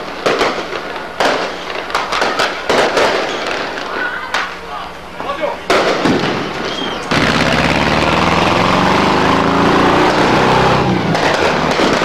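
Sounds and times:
small engine running: 7.1 - 11.8.

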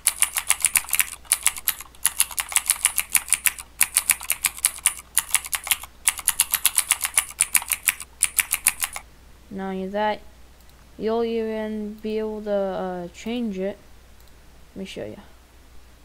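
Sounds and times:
mechanical keyboard typing: 0.0 - 9.0.

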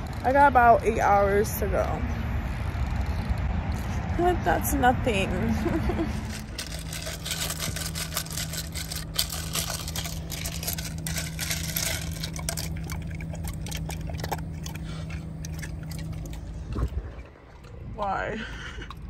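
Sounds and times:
low hum: 0.0 - 19.0
dog lapping water: 6.2 - 19.0.

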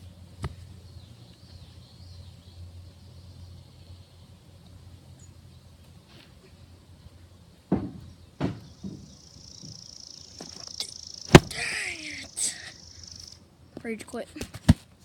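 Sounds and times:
steady high buzz: 8.6 - 13.6.

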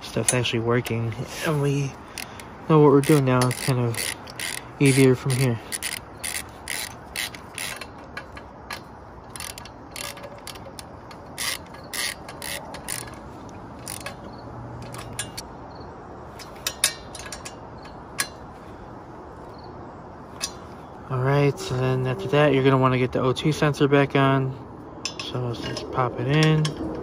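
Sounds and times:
ratchet wrench clicking: 0.1 - 15.5.

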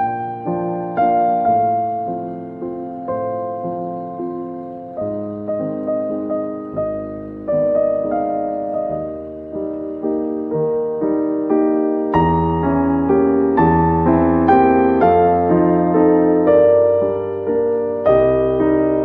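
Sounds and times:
piano music: 0.0 - 19.0.

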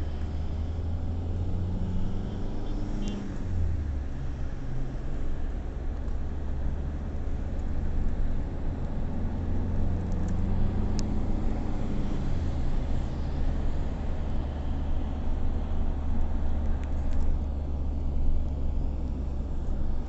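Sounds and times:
road noise: 0.0 - 20.0
vehicle engine rumble: 0.0 - 20.0.

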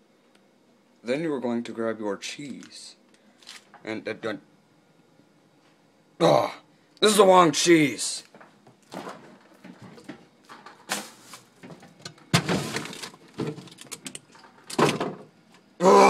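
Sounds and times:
food packages rustling: 8.8 - 12.0.

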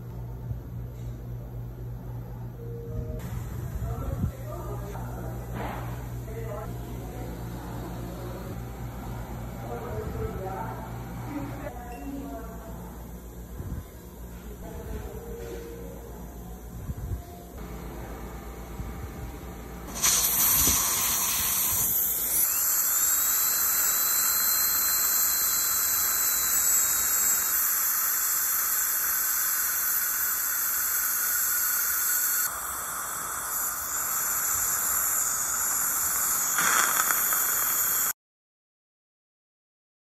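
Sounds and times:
air and water spray hissing: 19.9 - 38.2
dental drill whining: 19.9 - 38.2.

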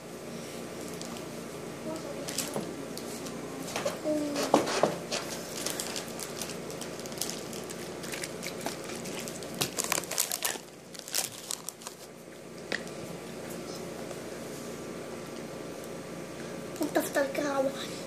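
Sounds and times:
plastic snack bag crinkling: 2.2 - 2.6, 5.4 - 12.1.

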